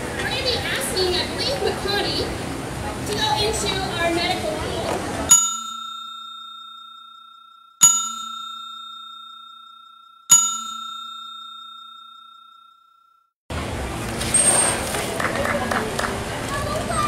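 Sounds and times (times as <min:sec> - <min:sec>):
bell-like chime ringing: 0:05.3 - 0:13.3.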